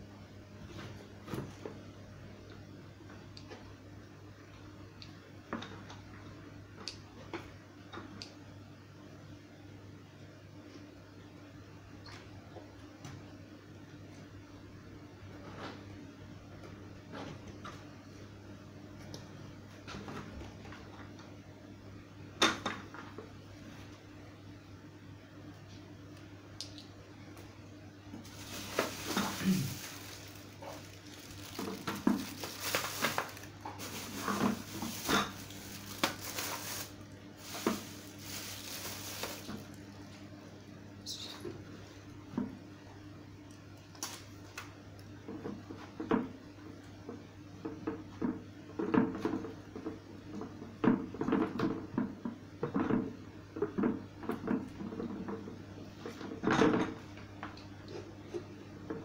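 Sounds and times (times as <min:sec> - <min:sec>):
plastic bags rustling: 0:28.2 - 0:39.9
plastic parts knocking and clattering: 0:28.3 - 0:36.8.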